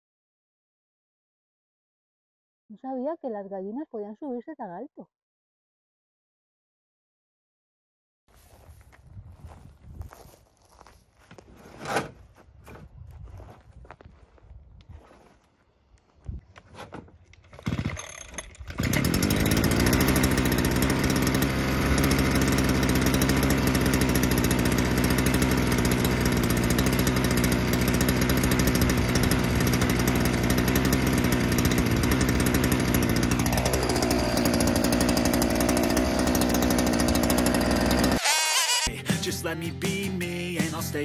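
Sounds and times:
brushcutter engine running: 0:17.3 - 0:39.2.

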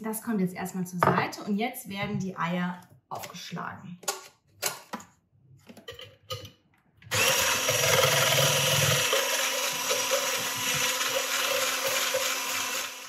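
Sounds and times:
hand blender motor whine: 0:07.1 - 0:13.0.

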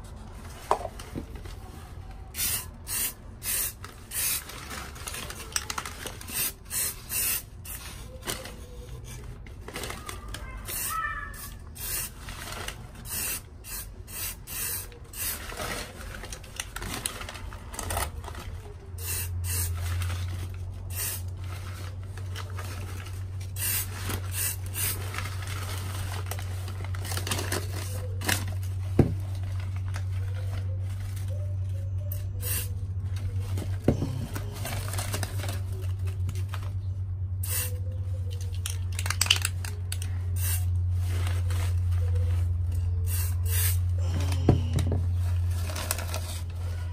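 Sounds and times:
newspaper rustling: 0:00.0 - 0:14.0, 0:14.7 - 0:37.0, 0:38.0 - 0:43.4, 0:44.1 - 0:46.9
spray can hissing: 0:02.4 - 0:04.4, 0:06.3 - 0:07.9, 0:10.7 - 0:12.2, 0:13.0 - 0:15.4, 0:19.0 - 0:19.8, 0:20.9 - 0:21.2, 0:23.6 - 0:25.0, 0:32.1 - 0:32.7, 0:37.4 - 0:37.8, 0:40.4 - 0:40.7, 0:43.0 - 0:43.8.

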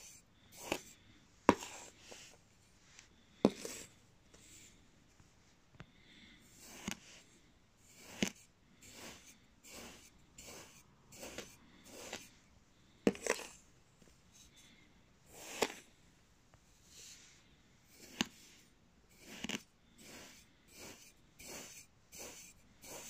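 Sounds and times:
knife slicing through sand: 0:07.9 - 0:12.3, 0:13.1 - 0:13.6, 0:19.2 - 0:23.0.

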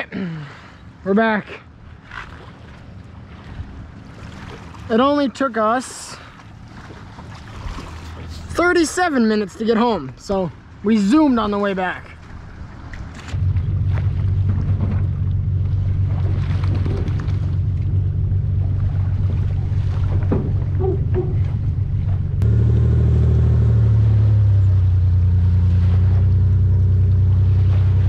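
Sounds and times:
engine humming at low revs: 0:12.3 - 0:28.0.

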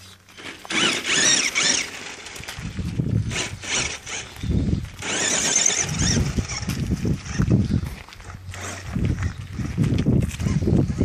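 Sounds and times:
rc car motor whining: 0:00.1 - 0:07.7.

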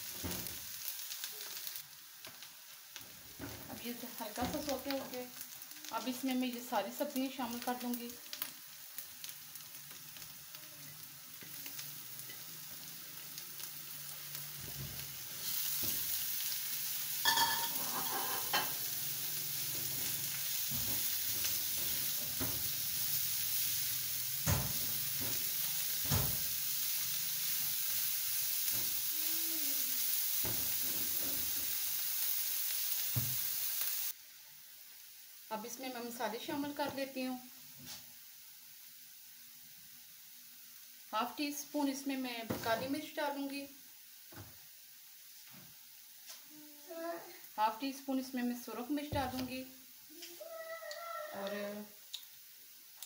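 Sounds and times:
vegetables sizzling in oil: 0:00.0 - 0:53.0
spatula scraping a pan: 0:17.3 - 0:18.8.

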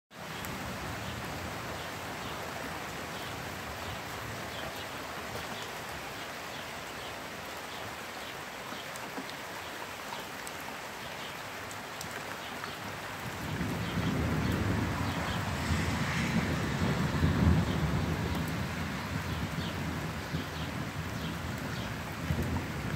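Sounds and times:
steady rain falling: 0:00.1 - 0:22.9.

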